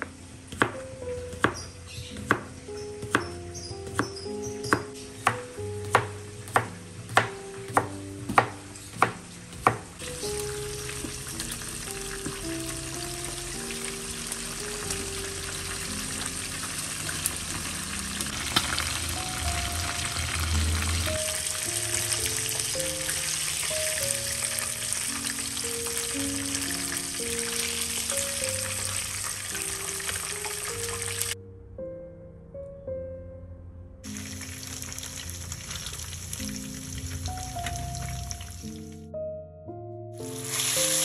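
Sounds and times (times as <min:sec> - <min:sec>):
light background music: 0:00.0 - 0:41.0
chicken sizzling in hot oil: 0:05.6 - 0:31.4, 0:34.0 - 0:38.9, 0:40.2 - 0:41.0.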